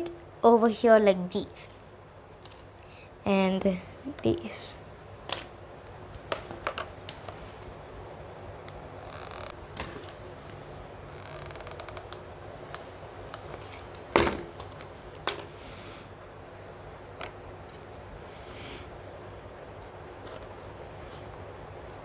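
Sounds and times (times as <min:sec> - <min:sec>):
objects knocked down on table: 0:14.2 - 0:14.5.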